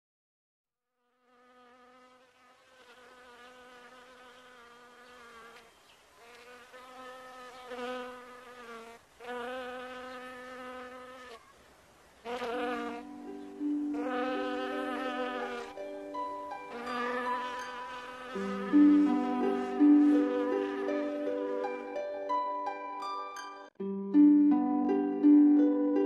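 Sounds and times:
flying insect buzzing: 0.9 - 11.5, 12.1 - 21.8
background music: 12.4 - 26.0.

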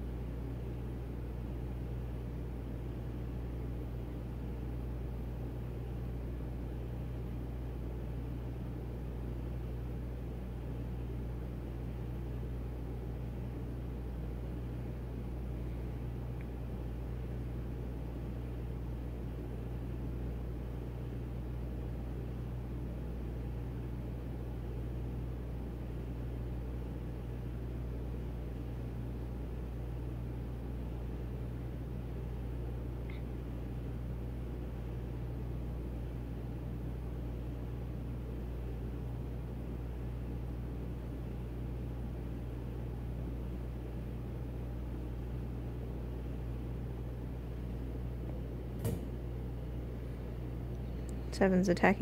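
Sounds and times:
low machine hum: 0.0 - 52.0.

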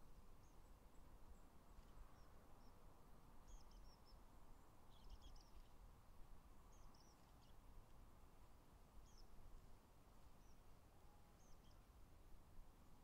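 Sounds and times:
small birds chirping: 3.4 - 4.2, 4.9 - 5.8, 6.7 - 7.6, 9.0 - 9.3, 11.4 - 11.9.

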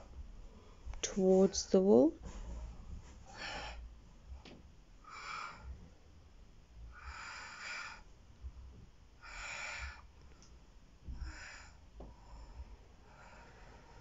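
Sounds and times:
woman breathing deeply: 3.2 - 4.4, 5.0 - 6.0, 6.8 - 8.1, 9.2 - 10.2, 11.0 - 14.0.

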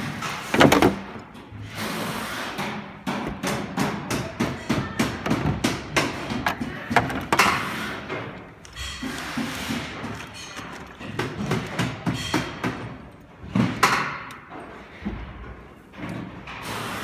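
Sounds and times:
knocks and thumps on metal frame: 0.0 - 1.6, 2.6 - 7.7.

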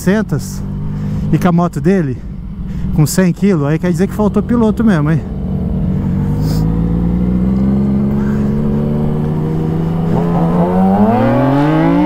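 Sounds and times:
motorcycle engine revving: 3.5 - 12.0.

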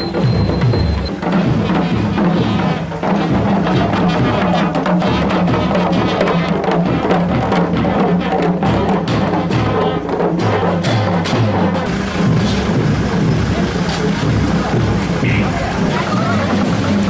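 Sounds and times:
drums beaten in steady rhythm: 0.0 - 17.0
bugles sounding: 11.1 - 17.0.

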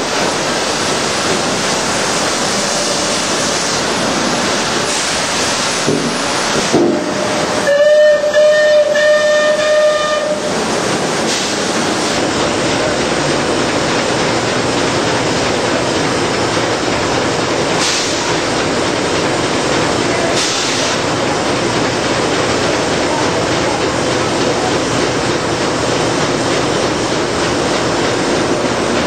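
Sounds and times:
steam-powered sawmill running: 0.0 - 29.0
steam whistle blowing: 6.9 - 10.6.

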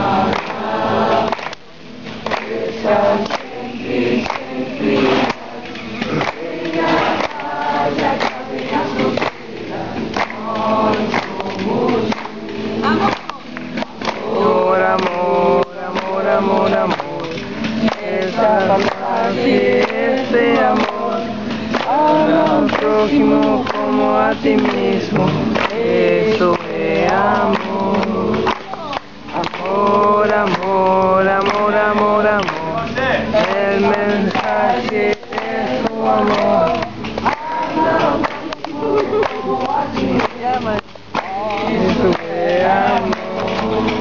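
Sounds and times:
group chanting: 0.0 - 44.0
sharp drum beat: 0.0 - 44.0.

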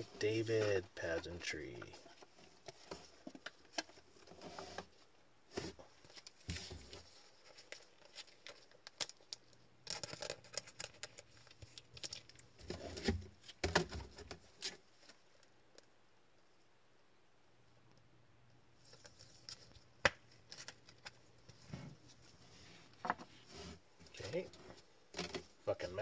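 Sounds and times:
cards and sleeves clicking and rustling: 5.6 - 15.2, 18.8 - 21.6.

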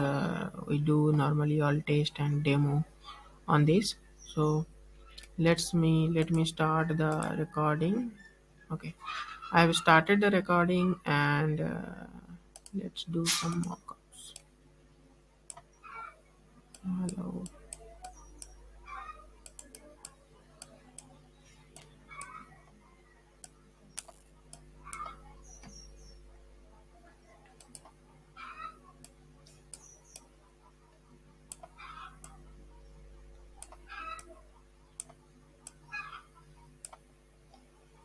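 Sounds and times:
low electrical hum: 0.0 - 38.0
computer mouse clicking: 6.2 - 6.5, 7.1 - 7.3, 12.6 - 12.8, 13.4 - 14.5, 16.7 - 22.5, 23.4 - 26.1, 27.5 - 28.0, 29.0 - 30.3, 31.5 - 32.4, 33.6 - 34.3, 34.9 - 36.0, 36.8 - 37.7.

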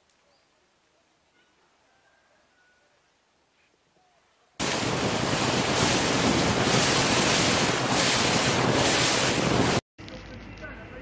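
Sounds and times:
sea: 4.6 - 9.8
wind blowing across microphone: 4.6 - 9.8.

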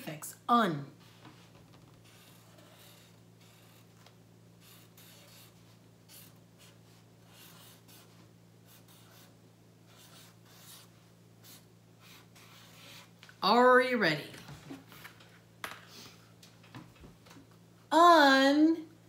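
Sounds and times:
marker writing on paper: 2.0 - 4.0, 4.6 - 9.3, 9.9 - 13.1.

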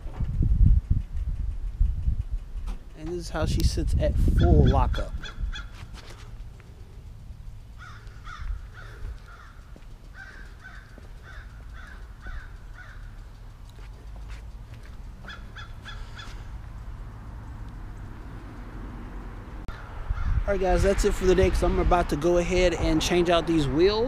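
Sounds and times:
steady low rumble: 0.0 - 24.0
bird harsh calls: 4.3 - 6.4, 7.7 - 13.5, 15.1 - 16.6.

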